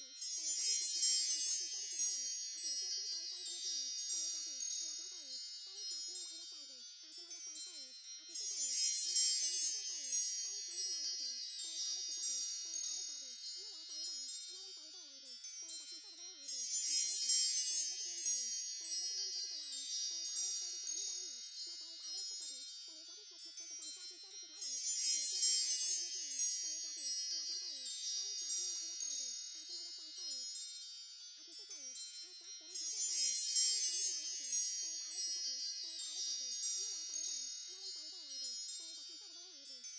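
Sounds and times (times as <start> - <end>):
wind chimes tinkling: 0.0 - 39.9.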